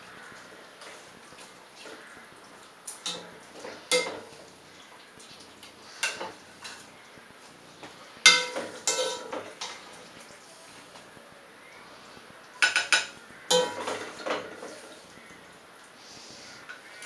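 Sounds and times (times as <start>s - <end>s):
utensil clinking against a pot: 3.0s - 4.3s, 6.0s - 6.9s, 8.2s - 9.8s, 12.6s - 14.8s.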